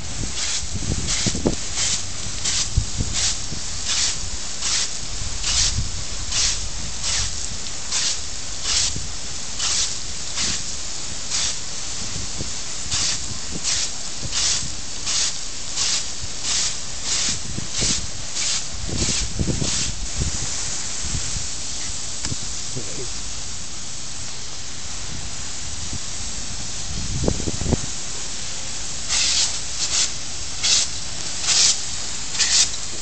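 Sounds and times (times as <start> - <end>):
water jet hissing: 0.0 - 33.0
dog biting water stream splashing: 0.4 - 5.7.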